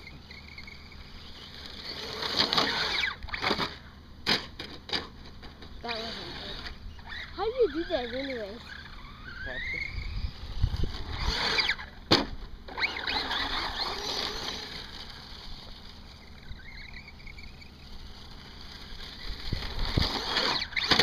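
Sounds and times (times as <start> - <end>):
electric motor whining: 0.0 - 4.0, 5.6 - 21.0
toy truck hitting the ground: 2.0 - 5.7, 10.9 - 15.6, 19.3 - 21.0.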